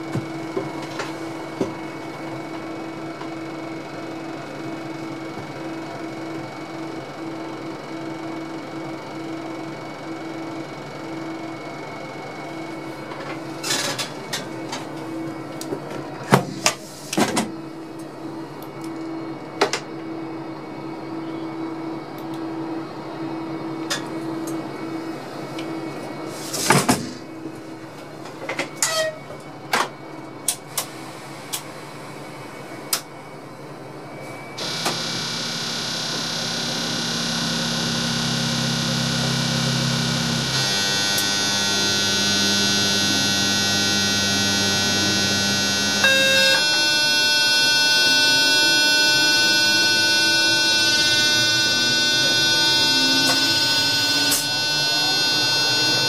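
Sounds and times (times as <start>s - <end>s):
electrical hum: 33.3s - 56.0s
locomotive machinery whirring: 34.4s - 56.0s.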